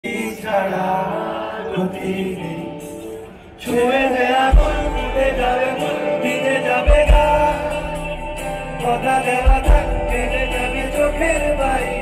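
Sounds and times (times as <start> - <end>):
man singing: 0.0 - 12.0
live band music: 1.2 - 12.0
deep bass: 4.6 - 5.6, 6.9 - 12.0.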